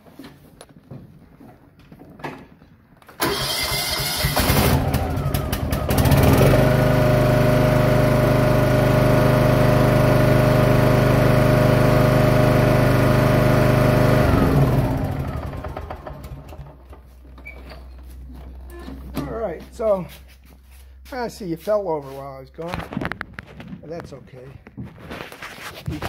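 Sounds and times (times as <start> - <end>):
starter motor cranking: 3.1 - 7.0
lawn tractor engine running: 3.1 - 19.8.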